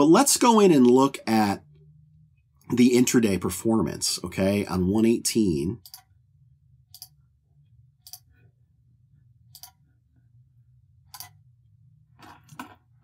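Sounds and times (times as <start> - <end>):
low steady hum: 0.0 - 13.0
computer mouse clicking: 5.8 - 6.1, 6.9 - 7.2, 8.0 - 8.3, 9.5 - 9.8, 11.1 - 11.4.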